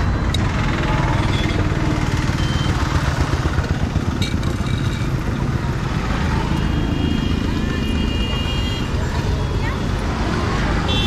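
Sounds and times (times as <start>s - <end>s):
engine idling: 0.0s - 6.6s
road traffic: 0.0s - 11.0s.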